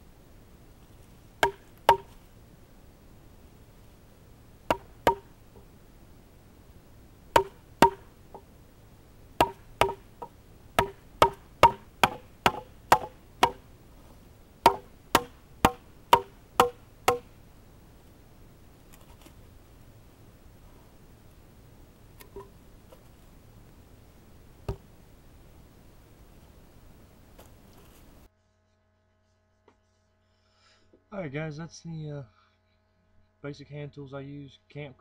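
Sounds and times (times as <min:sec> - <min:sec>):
baton knocking on knife spine: 0:01.4 - 0:02.2, 0:04.7 - 0:05.3, 0:07.4 - 0:08.1, 0:09.4 - 0:13.6, 0:14.7 - 0:17.3.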